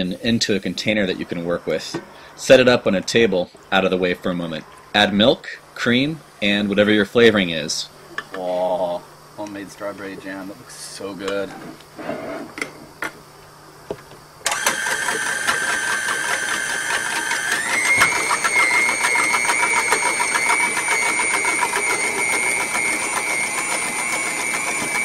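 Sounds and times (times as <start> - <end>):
stand mixer motor whine: 14.4 - 25.0.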